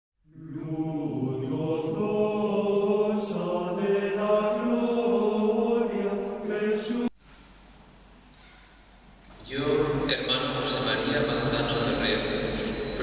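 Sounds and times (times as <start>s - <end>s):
men singing plainchant: 0.4s - 7.1s.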